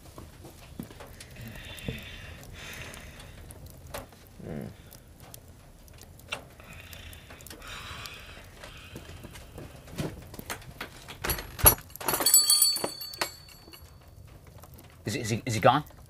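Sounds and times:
man humming: 4.4s - 4.8s.

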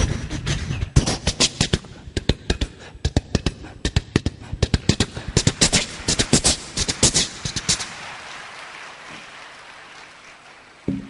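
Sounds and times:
person imitating train with mouth: 0.0s - 7.2s.

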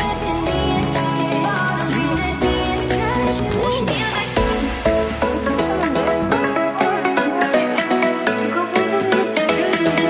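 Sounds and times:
electronic pop music: 0.0s - 10.0s.

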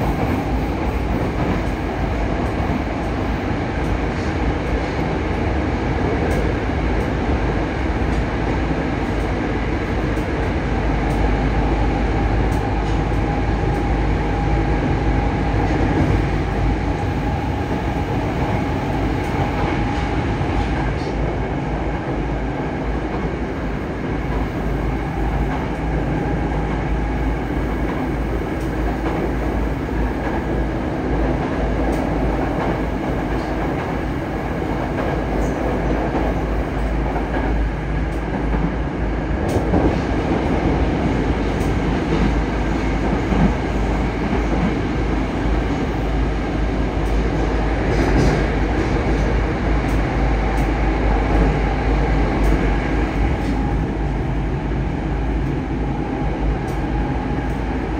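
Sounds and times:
train wheels rumbling on rail: 0.0s - 57.9s.

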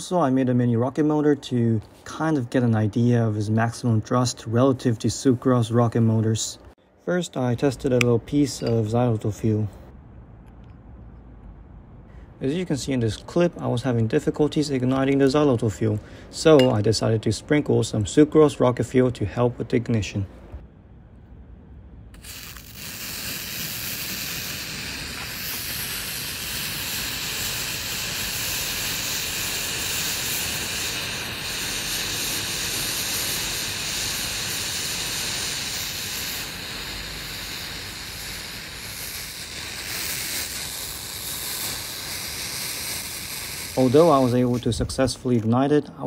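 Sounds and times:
rocket fuel burning with hiss: 22.1s - 45.4s.

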